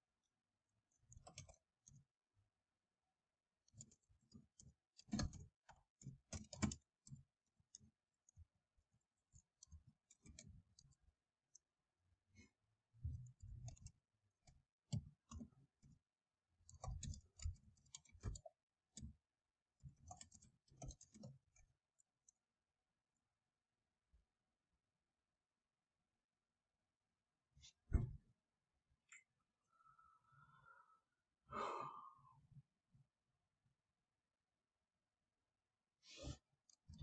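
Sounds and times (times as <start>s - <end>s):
keyboard typing: 0.9s - 2.0s, 3.6s - 8.6s, 9.2s - 11.6s, 13.0s - 15.9s, 16.6s - 22.4s.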